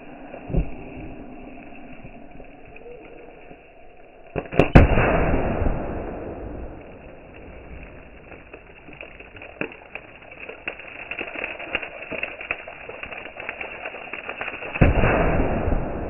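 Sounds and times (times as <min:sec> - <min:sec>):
small ticks and pops: 0:00.2 - 0:04.9, 0:06.4 - 0:15.6
explosion rush: 0:04.4 - 0:10.7, 0:14.8 - 0:16.0
spray raining onto water: 0:06.8 - 0:15.8.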